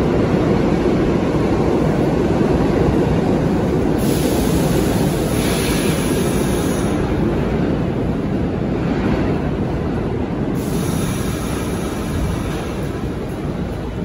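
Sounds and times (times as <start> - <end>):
subway train rumbling: 0.0 - 14.0
high hiss of air: 4.0 - 7.1, 10.6 - 12.9.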